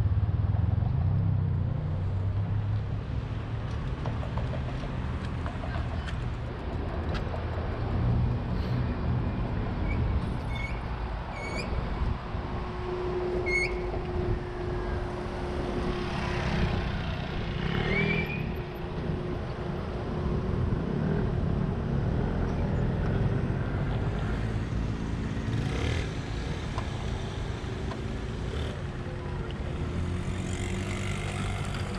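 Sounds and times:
low rumble of traffic: 0.0 - 31.9
motor scooter passing: 13.0 - 19.2, 23.3 - 31.9.

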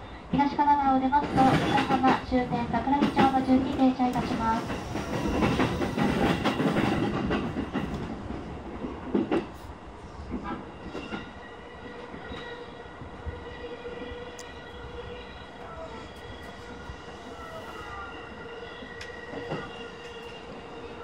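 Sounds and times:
train wheels clattering over rail joints: 1.2 - 9.6
electric train motor whine: 4.4 - 6.4.

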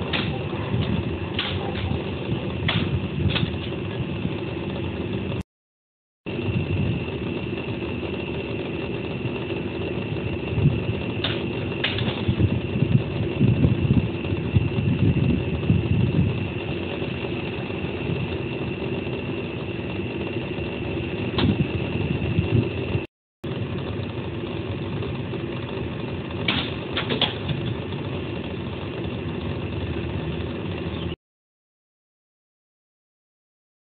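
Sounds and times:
sharp knocks and clicks: 0.0 - 2.0, 2.6 - 3.8, 11.2 - 12.4, 26.5 - 27.8
outdoor background hum: 0.0 - 5.5, 6.2 - 31.2.

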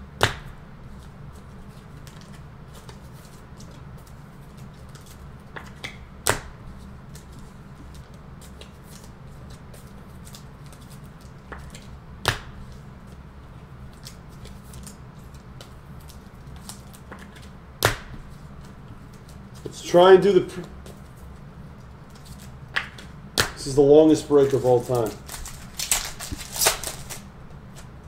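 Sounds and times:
low steady hum: 0.0 - 28.0
trading cards rustling: 18.3 - 28.0.

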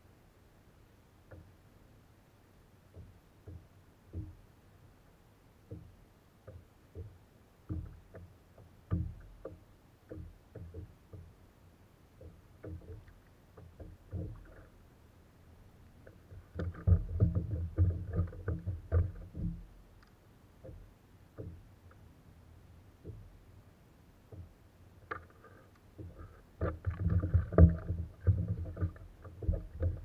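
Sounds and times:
water lapping at hull: 5.6 - 30.0
knocks on plastic kayak hull: 6.5 - 8.3, 8.9 - 11.3, 16.6 - 19.7.

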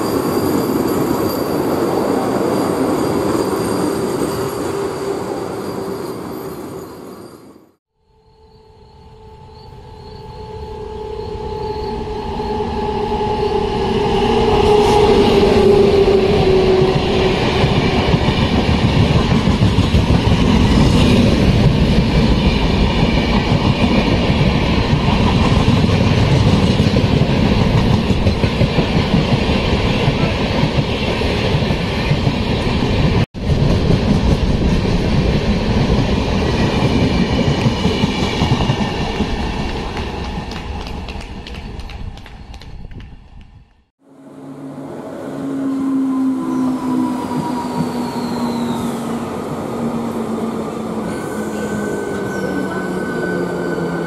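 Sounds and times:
train horn: 8.0 - 17.4, 44.0 - 48.9
train coaches rushing and rattling: 12.4 - 41.9.

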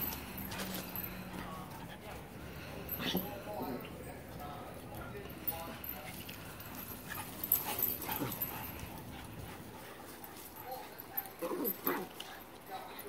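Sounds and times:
dogs making play vocalizations: 6.1 - 12.9.

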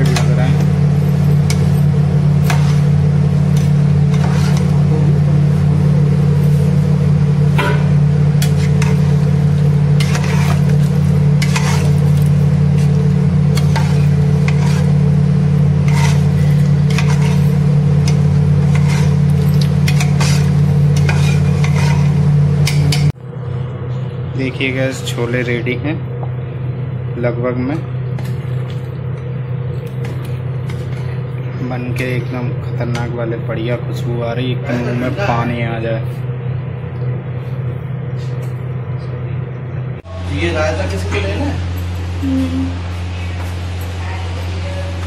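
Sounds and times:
light sizzle: 0.0 - 23.2
loud steady low hum: 0.0 - 45.0
spoon scraping and clinking pan: 10.0 - 12.0, 15.8 - 23.1.

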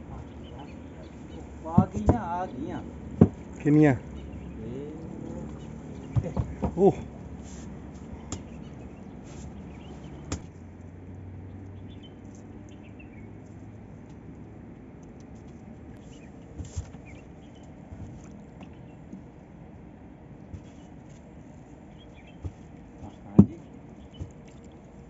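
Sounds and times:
soft thumps: 1.6 - 2.4, 3.2 - 3.6, 5.4 - 8.7.

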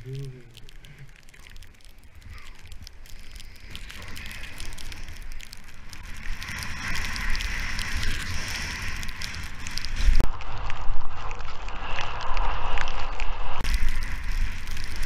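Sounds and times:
wind rumbling on microphone: 0.0 - 15.0
skis scraping over snow: 2.3 - 10.2, 11.2 - 15.0.

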